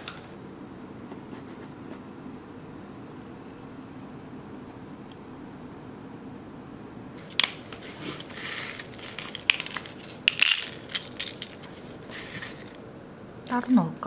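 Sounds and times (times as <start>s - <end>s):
rustling: 7.2s - 12.8s
small metal parts clinking: 7.4s - 12.8s.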